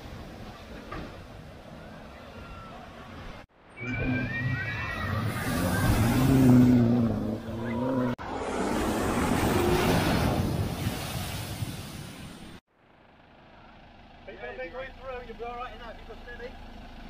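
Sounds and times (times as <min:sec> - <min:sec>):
rush of water spray: 0:05.2 - 0:06.7, 0:08.3 - 0:12.6
car engine hum: 0:05.2 - 0:09.8, 0:12.7 - 0:17.0.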